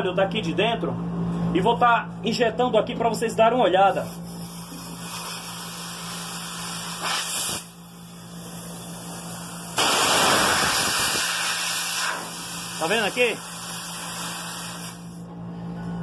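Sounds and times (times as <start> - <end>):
gas hissing from hose: 4.0 - 15.2.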